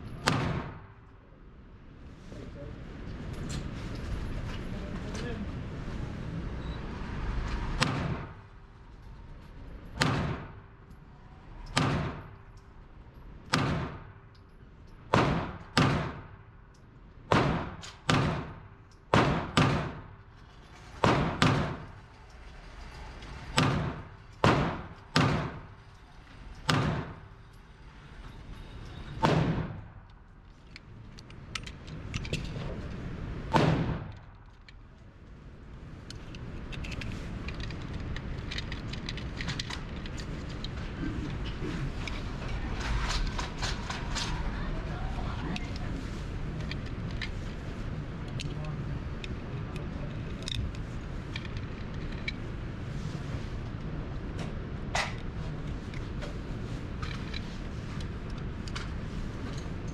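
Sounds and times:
gunshots indoors: 0:00.0 - 0:01.1, 0:07.7 - 0:08.5, 0:09.8 - 0:10.8, 0:11.6 - 0:12.5, 0:13.4 - 0:14.4, 0:15.1 - 0:16.4, 0:17.2 - 0:20.2, 0:20.8 - 0:22.1, 0:23.2 - 0:25.8, 0:26.5 - 0:27.4, 0:29.1 - 0:30.0, 0:33.4 - 0:34.4.

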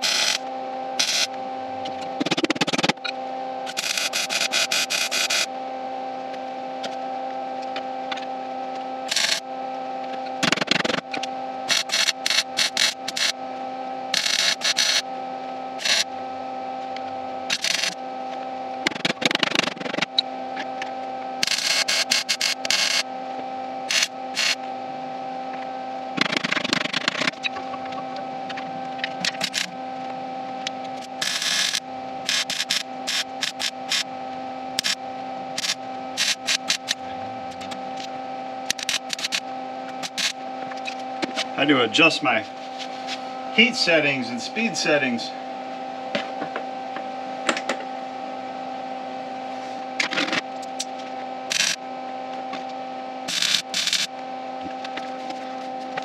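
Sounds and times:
steady electrical hum: 0:00.0 - 0:56.0
welder crackling: 0:31.0 - 0:34.1, 0:34.8 - 0:37.8, 0:38.6 - 0:39.4, 0:40.0 - 0:40.4, 0:51.5 - 0:51.8, 0:53.3 - 0:54.1.

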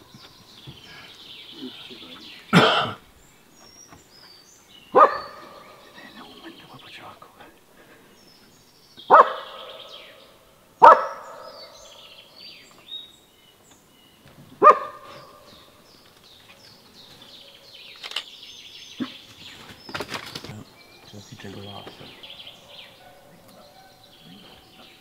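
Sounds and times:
songbirds chirping: 0:00.0 - 0:25.0
dog barking: 0:04.9 - 0:05.9, 0:09.1 - 0:12.0, 0:14.6 - 0:15.5, 0:22.2 - 0:24.9.

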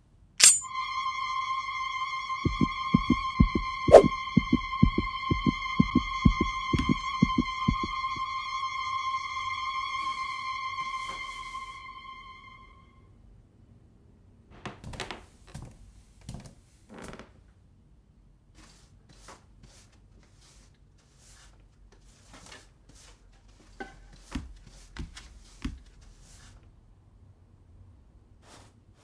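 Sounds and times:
soft swishes: 0:02.5 - 0:07.9
soft thuds: 0:02.5 - 0:08.2.

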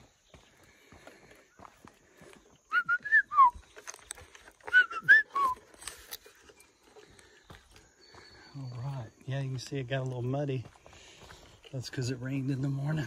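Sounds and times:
person whistling a phrase: 0:02.7 - 0:03.6, 0:04.7 - 0:05.6.

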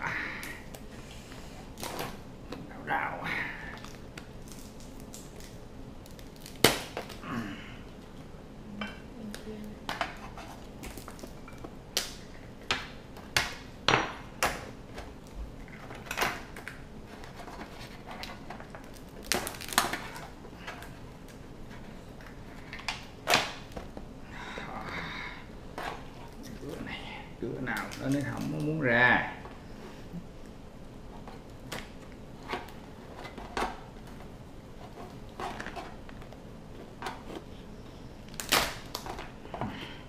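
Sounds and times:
crab shell cracking: 0:03.8 - 0:07.2, 0:18.2 - 0:21.4.

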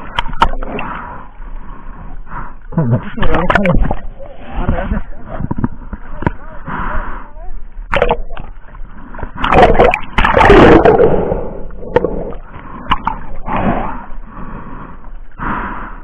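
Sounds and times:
seawater splashing: 0:07.7 - 0:15.1.

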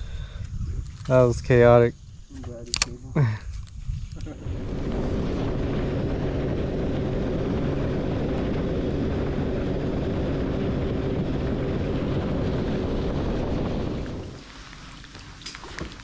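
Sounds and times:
outboard motor drone: 0:04.2 - 0:16.0.

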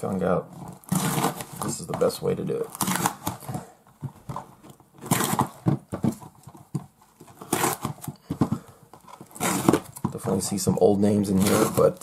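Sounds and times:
blade scraping cardboard: 0:00.6 - 0:03.7, 0:05.0 - 0:06.3, 0:07.3 - 0:10.5, 0:11.2 - 0:12.0
cardboard boxes knocking: 0:03.3 - 0:10.7.

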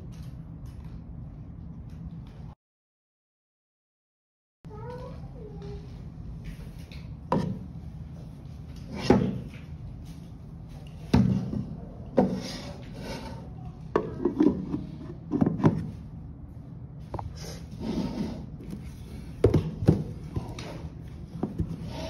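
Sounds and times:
steady low hum: 0:04.7 - 0:22.0.

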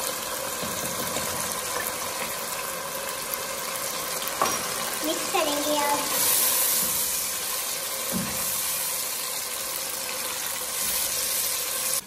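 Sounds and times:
chicken sizzling in a pan: 0:00.0 - 0:12.0.

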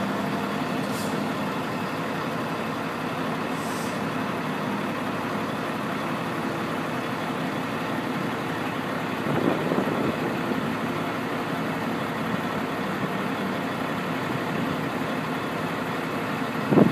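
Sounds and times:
diesel locomotive engine running: 0:00.0 - 0:16.9.

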